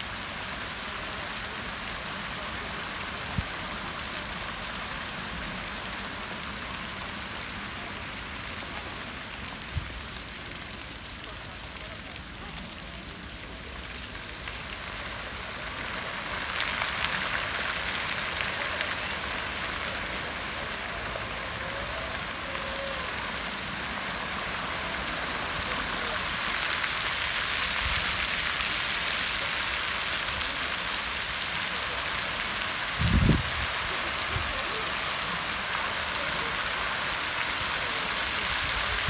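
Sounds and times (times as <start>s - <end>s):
fountain water jets spraying: 0.0s - 39.0s.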